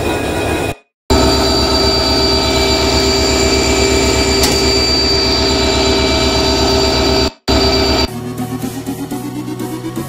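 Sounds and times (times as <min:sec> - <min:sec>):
diesel locomotive engine running: 0:01.1 - 0:08.1.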